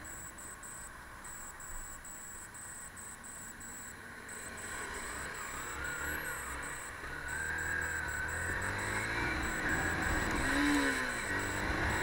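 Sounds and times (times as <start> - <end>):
motorcycle engine: 2.7 - 12.0.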